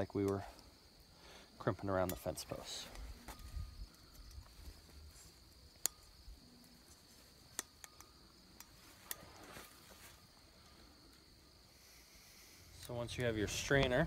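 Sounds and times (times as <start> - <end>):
crickets chirring: 0.0 - 14.0
sharp clicks of wire and tool: 2.0 - 4.5, 5.8 - 9.2.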